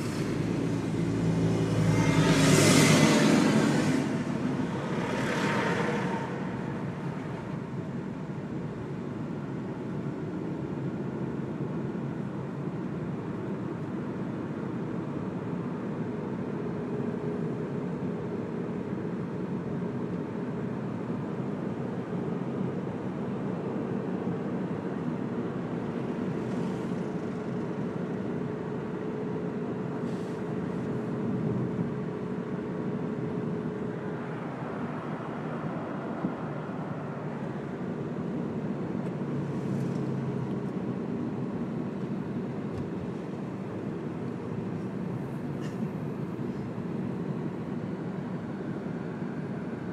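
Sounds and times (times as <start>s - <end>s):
car engine: 0.0s - 10.6s
tyres rumbling on asphalt: 0.0s - 49.9s.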